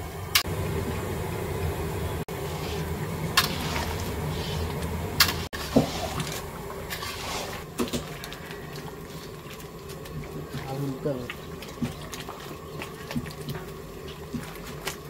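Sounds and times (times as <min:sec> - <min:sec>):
steady low rumble: 0:00.0 - 0:07.7
curry bubbling in a pan: 0:02.3 - 0:15.0
metal ladle scraping pan: 0:02.4 - 0:09.4.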